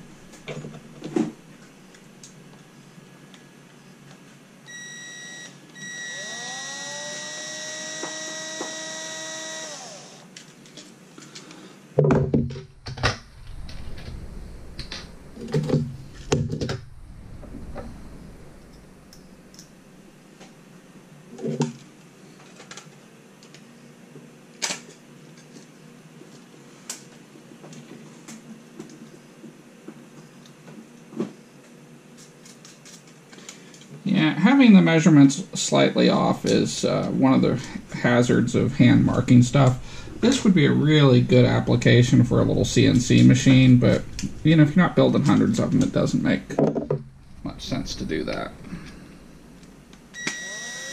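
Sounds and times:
cordless drill whining: 0:04.7 - 0:10.3, 0:50.2 - 0:50.9
knocks and thumps on desk: 0:12.0 - 0:12.7.

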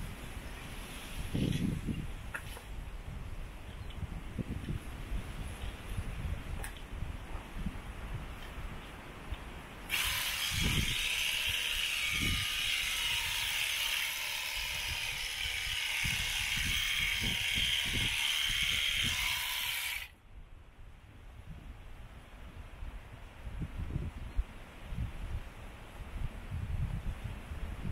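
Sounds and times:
shearing handpiece buzzing: 0:09.9 - 0:20.1.

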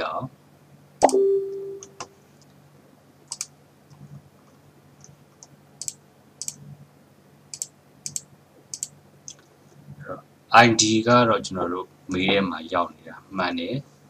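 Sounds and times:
faint steady hum: 0:00.0 - 0:14.0
keyboard typing: 0:03.3 - 0:03.5.

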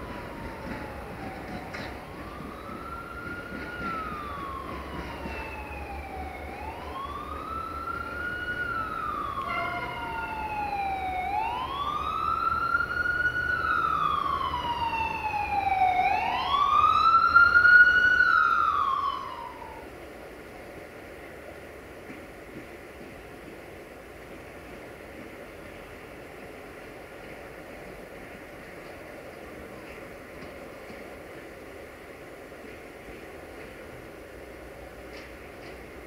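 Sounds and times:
siren wailing: 0:00.0 - 0:19.9.

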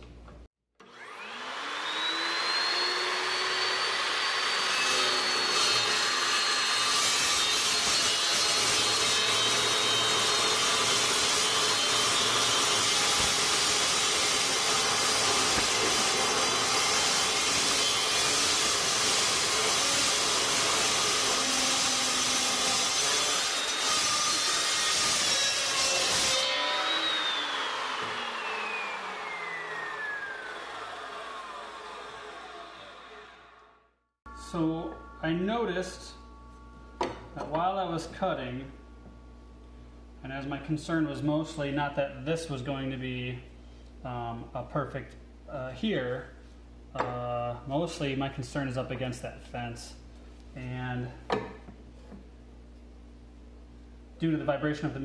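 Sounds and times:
chop saw whining: 0:00.8 - 0:33.7
saw cutting steel pipes: 0:00.8 - 0:36.2.

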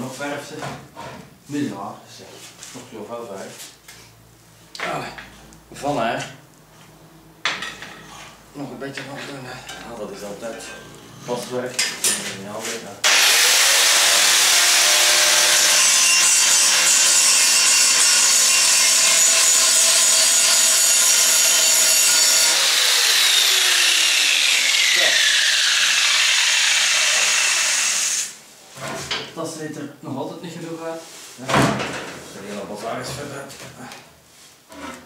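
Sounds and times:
angle grinder grinding metal: 0:13.0 - 0:28.4.

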